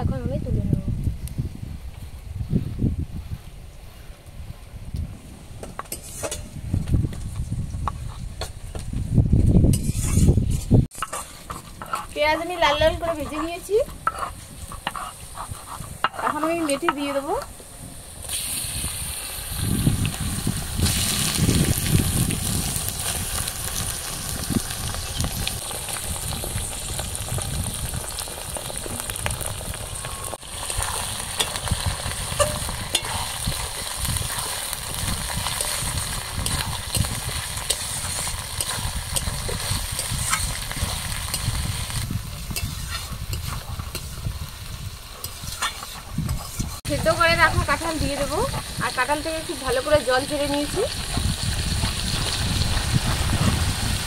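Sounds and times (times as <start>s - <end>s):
metal spatula scraping pan: 5.9s - 6.5s, 9.7s - 17.2s, 30.3s - 34.7s, 42.5s - 44.1s, 45.2s - 46.8s
meat sizzling in oil: 18.0s - 54.0s.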